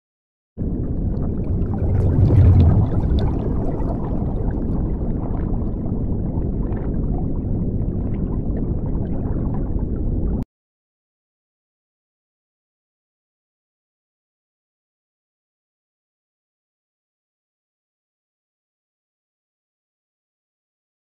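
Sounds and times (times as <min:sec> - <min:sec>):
underwater bubbling and rumbling: 0:00.6 - 0:10.4
bubble pops: 0:01.4 - 0:04.2.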